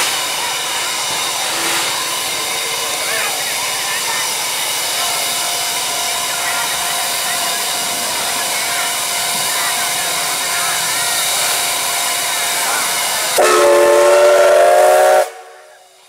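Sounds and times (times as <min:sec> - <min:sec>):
steam locomotive hissing: 0:00.0 - 0:16.0
steam whistle blast: 0:13.4 - 0:16.0.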